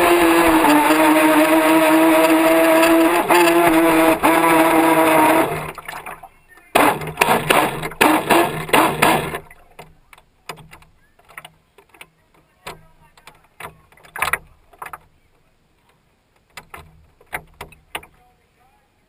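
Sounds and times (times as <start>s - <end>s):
water rushing against boat hull: 0.0s - 10.8s.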